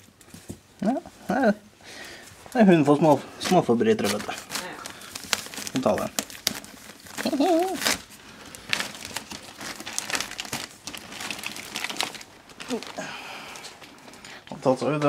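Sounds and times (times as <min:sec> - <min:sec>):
toys rustling and crinkling: 0:02.1 - 0:15.0.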